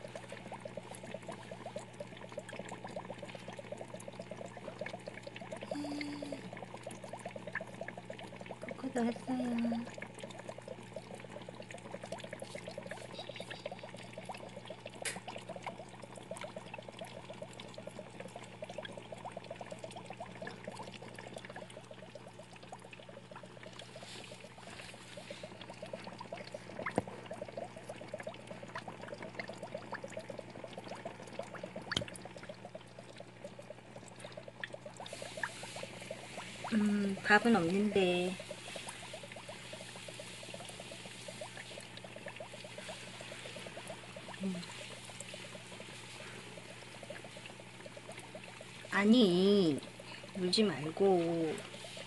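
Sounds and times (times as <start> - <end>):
low even hum: 0.0 - 52.0
water trickling and bubbling: 0.0 - 52.0.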